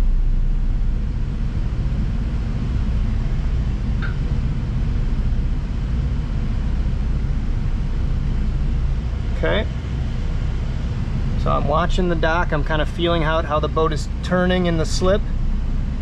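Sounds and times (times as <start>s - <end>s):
boat engines low rumble: 0.0s - 16.0s.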